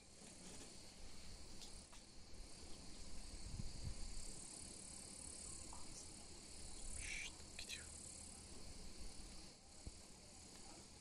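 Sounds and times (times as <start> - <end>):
insect chorus chirring: 0.0 - 11.0.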